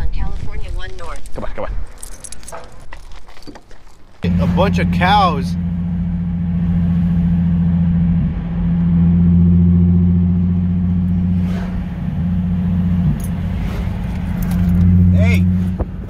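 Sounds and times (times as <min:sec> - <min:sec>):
road noise: 0:00.0 - 0:16.0
car engine droning: 0:04.2 - 0:16.0.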